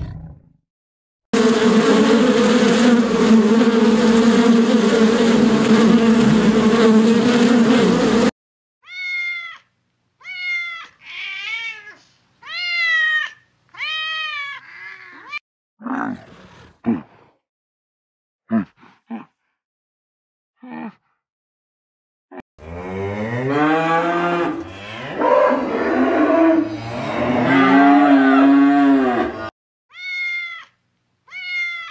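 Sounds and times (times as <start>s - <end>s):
loud buzzing drone: 1.4s - 8.3s
cat meowing: 8.8s - 15.4s, 29.9s - 31.9s.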